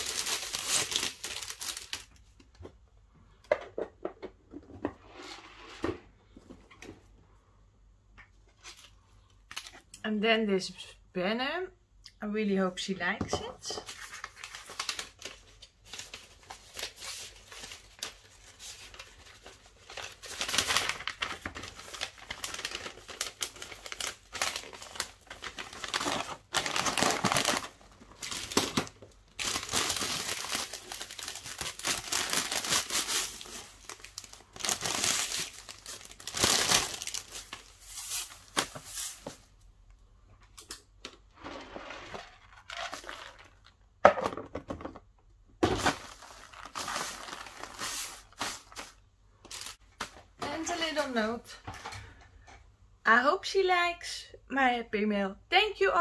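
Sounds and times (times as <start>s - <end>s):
paper rustling and crinkling: 0.0s - 2.2s, 13.8s - 39.5s, 45.8s - 50.2s.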